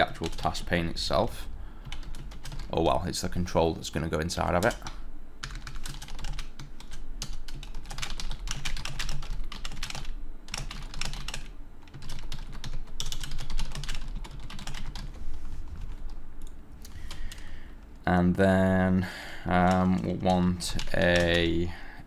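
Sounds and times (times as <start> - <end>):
fast typing on keyboard: 0.0 - 0.9, 1.8 - 2.8, 4.6 - 15.2, 19.6 - 21.6.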